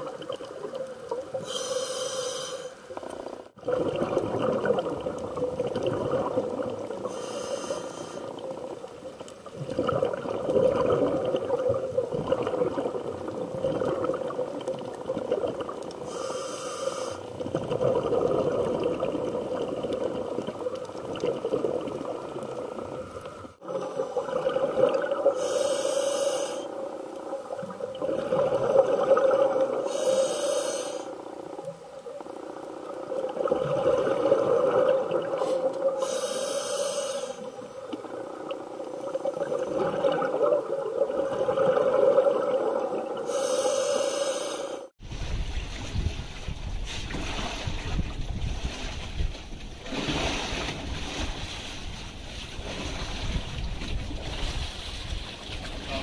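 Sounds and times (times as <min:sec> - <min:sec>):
regulator hissing inhalations: 0:01.4 - 0:02.8, 0:07.0 - 0:08.4, 0:16.1 - 0:17.3, 0:25.4 - 0:26.8, 0:29.8 - 0:31.2, 0:35.4 - 0:37.6, 0:43.2 - 0:44.9
bubbling exhalations: 0:03.6 - 0:07.2, 0:09.5 - 0:16.1, 0:17.3 - 0:25.5, 0:27.5 - 0:30.0, 0:33.2 - 0:36.0, 0:39.1 - 0:43.4.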